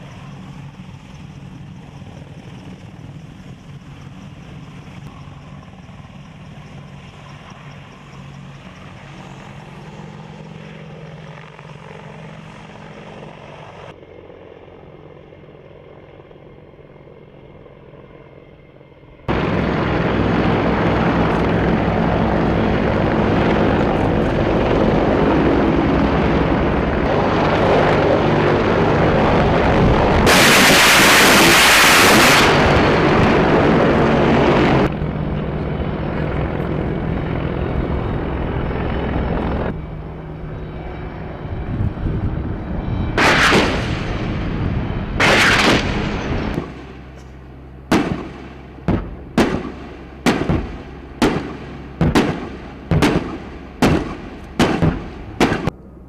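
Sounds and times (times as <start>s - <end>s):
helicopter flying: 0.0s - 56.0s
weapons fire burst: 30.2s - 33.1s, 43.2s - 44.4s, 45.2s - 47.0s, 47.9s - 55.7s.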